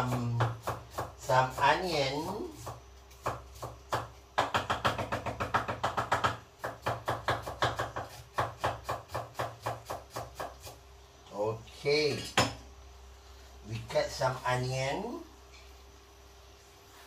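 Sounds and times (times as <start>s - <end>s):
knife chopping on cutting board: 0.0s - 10.8s.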